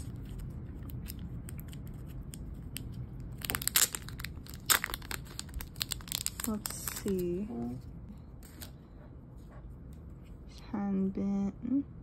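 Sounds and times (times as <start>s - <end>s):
plastic sleeve crinkling: 0.0s - 7.8s.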